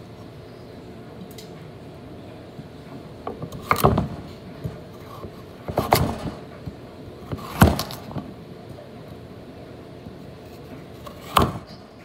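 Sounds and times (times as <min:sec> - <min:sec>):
knife cutting carrots on board: 0:05.0 - 0:06.4, 0:07.2 - 0:08.2, 0:11.0 - 0:11.6.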